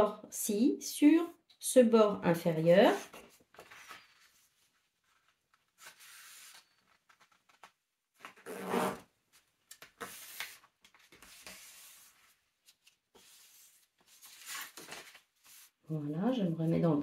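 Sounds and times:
paper rustling: 3.1s - 8.5s, 9.2s - 15.9s.

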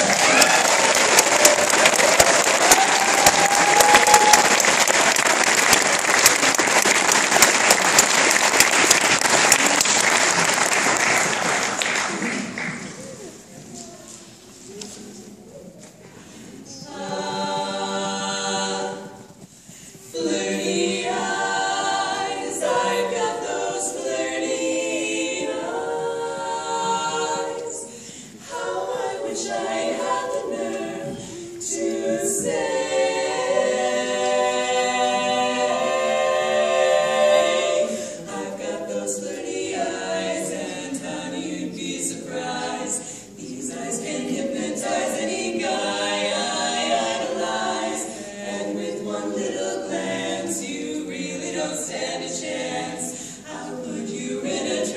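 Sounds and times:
women singing a cappella: 16.6s - 54.9s.

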